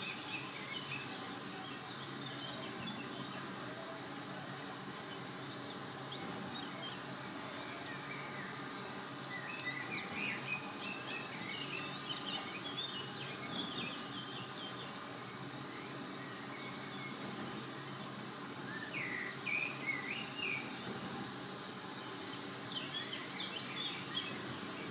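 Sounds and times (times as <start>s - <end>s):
outdoor background noise: 0.0s - 24.9s
small birds chirping and trilling: 0.1s - 24.9s.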